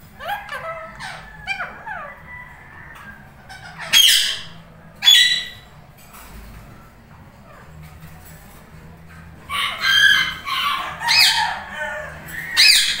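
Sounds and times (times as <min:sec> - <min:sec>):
parakeets chirping: 0:00.0 - 0:05.8, 0:09.6 - 0:13.0
parakeet harsh squawks: 0:03.4 - 0:05.7, 0:09.5 - 0:11.7, 0:12.3 - 0:13.0.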